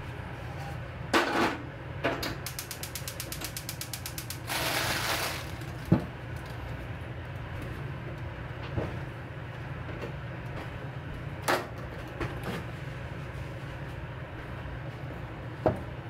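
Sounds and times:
small mechanical clicks: 0:02.5 - 0:04.8.

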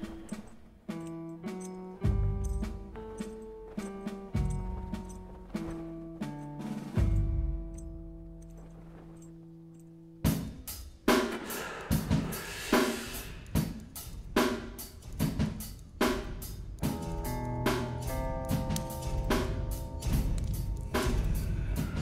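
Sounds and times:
drum kit beat: 0:10.3 - 0:22.0.

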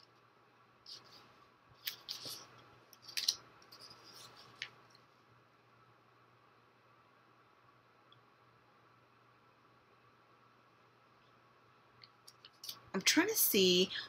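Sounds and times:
yarn and paper label rustling: 0:00.8 - 0:05.1.

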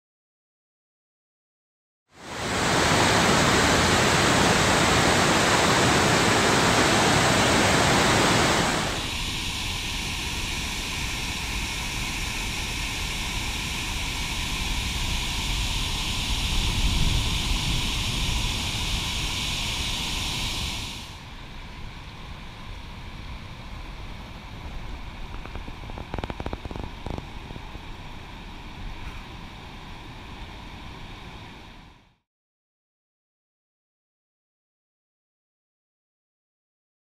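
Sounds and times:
loud even rushing noise: 0:02.2 - 0:13.7
water pouring down a spillway: 0:02.2 - 0:16.1.

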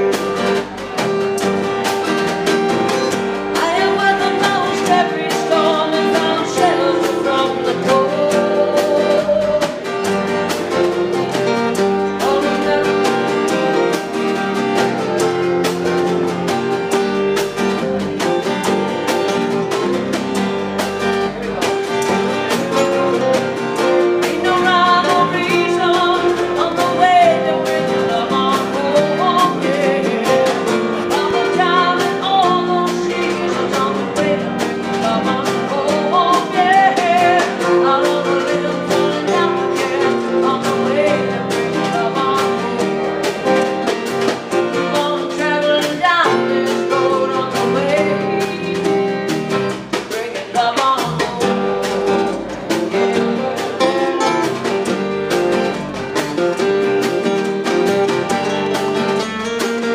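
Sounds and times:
electric bass: 0:00.0 - 0:50.2, 0:51.0 - 0:59.9
percussion beat: 0:00.0 - 0:59.9
strummed acoustic guitars: 0:00.0 - 0:59.9
woman singing: 0:02.9 - 0:16.3, 0:22.3 - 0:55.7.

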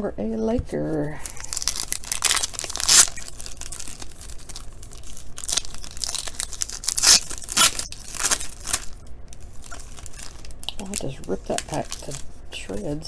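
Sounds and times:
foil card pack crinkling: 0:01.2 - 0:13.0
foil pack tearing: 0:01.3 - 0:12.3.

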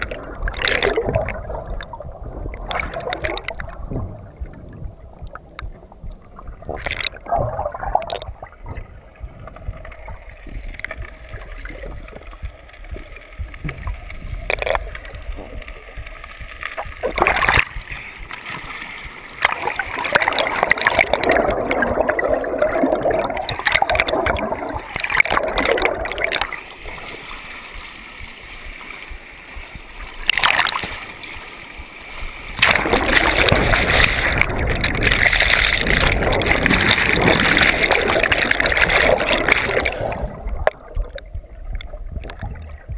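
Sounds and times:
muffled underwater bubbling rush: 0:00.0 - 0:42.9
water splashing and sloshing: 0:00.0 - 0:42.9.

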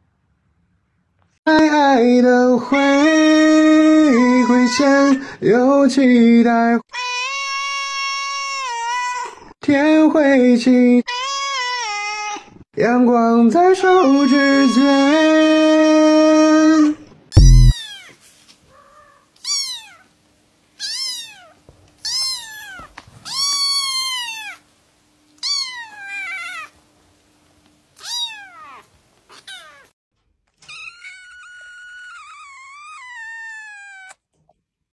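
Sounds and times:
low thump: 0:17.4 - 0:17.7
kitten meowing: 0:17.4 - 0:18.1, 0:20.8 - 0:24.6, 0:25.4 - 0:26.6, 0:28.0 - 0:29.9, 0:30.6 - 0:34.2
cat long drawn-out meow: 0:30.8 - 0:34.2.

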